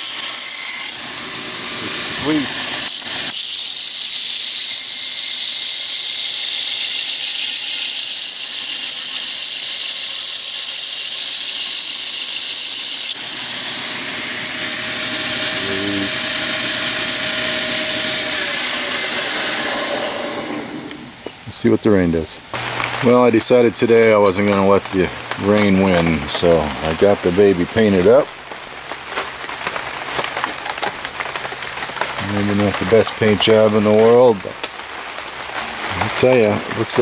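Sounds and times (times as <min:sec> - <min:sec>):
belt grinder grinding blade: 0:00.0 - 0:21.2.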